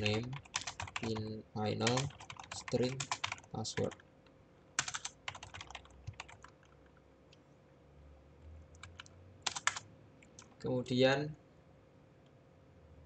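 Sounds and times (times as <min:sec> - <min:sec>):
typing on computer keyboard: 0:00.0 - 0:04.1, 0:04.8 - 0:07.0, 0:08.7 - 0:10.6.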